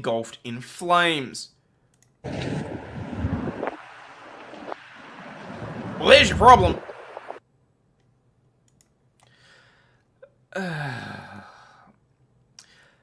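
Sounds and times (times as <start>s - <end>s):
faint clicks: 1.9s - 5.6s, 8.0s - 9.4s
man sighing: 10.5s - 11.9s.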